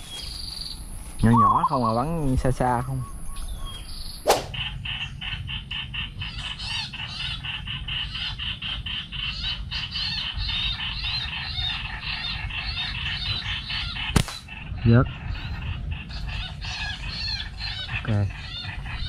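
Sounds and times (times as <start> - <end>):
small bird chirping: 0.0 - 19.0.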